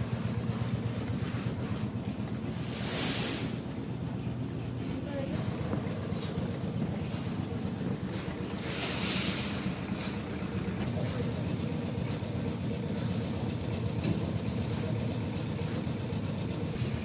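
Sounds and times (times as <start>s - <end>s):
heavy machinery engine rumbling: 0.0s - 17.0s
short hiss: 2.6s - 3.6s, 8.6s - 9.8s.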